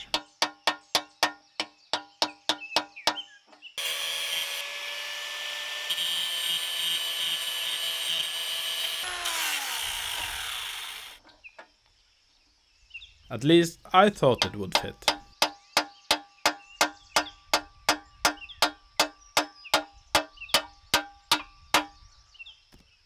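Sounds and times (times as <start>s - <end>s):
sharp metallic taps: 0.0s - 3.3s, 14.4s - 22.0s
handheld power tool running: 3.8s - 11.2s.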